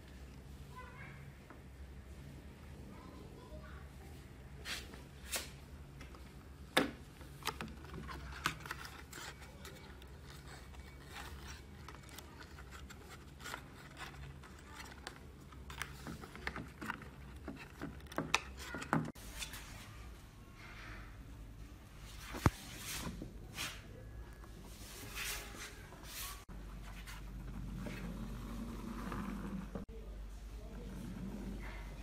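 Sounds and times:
fingers handling wires and cardboard: 6.0 - 19.2
faint low hum: 19.3 - 32.0.

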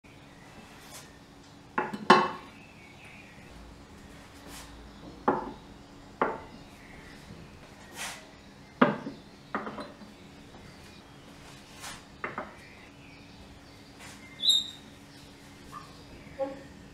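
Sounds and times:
dishes clunking on wooden table: 1.8 - 2.5, 5.2 - 5.6, 6.2 - 6.5, 8.8 - 10.1.

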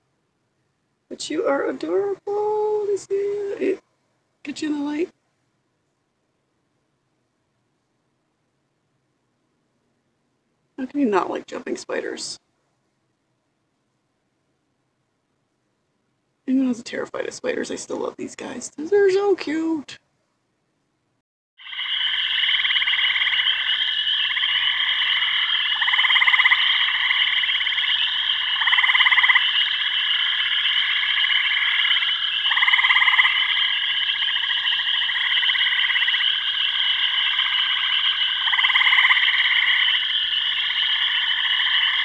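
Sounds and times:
chorus of frogs calling: 21.6 - 42.0.

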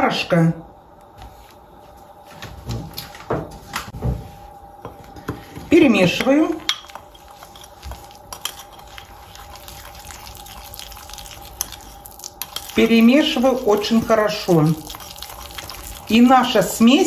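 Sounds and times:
metal spoon scraping ceramic bowl: 6.6 - 9.1.

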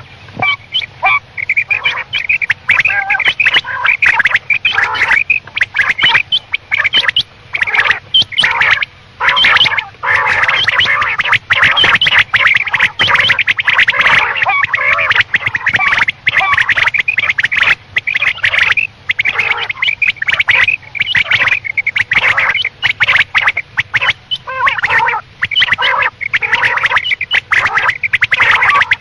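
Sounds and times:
quail calling: 0.0 - 29.0.

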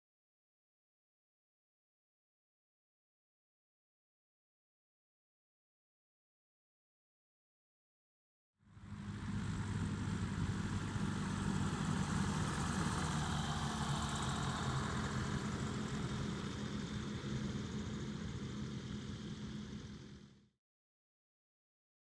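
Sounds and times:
propeller aircraft engine: 8.6 - 20.6.

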